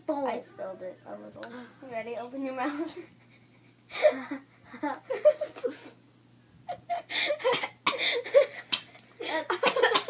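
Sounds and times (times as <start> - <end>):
girls laughing and giggling: 2.7 - 6.0, 6.7 - 10.0.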